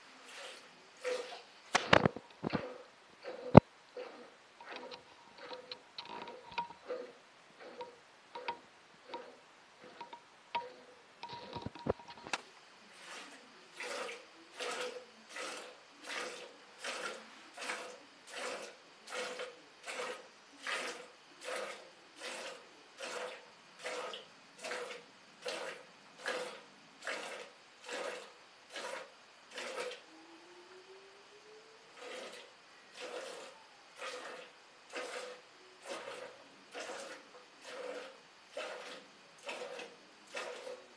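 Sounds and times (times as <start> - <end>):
milk squirting into steel pail: 0.2 - 12.4, 13.0 - 30.0, 31.9 - 40.8.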